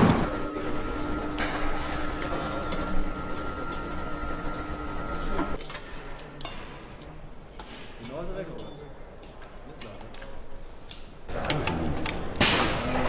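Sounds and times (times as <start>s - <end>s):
machine whine: 0.0s - 5.6s
steady background noise: 0.0s - 13.0s
clinks and clicks of tools: 5.6s - 12.6s.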